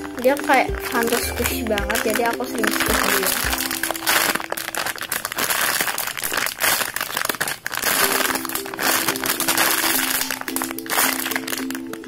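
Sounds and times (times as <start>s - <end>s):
simple background music melody: 0.0s - 5.1s, 8.0s - 12.0s
plastic bag crinkling: 0.0s - 12.0s.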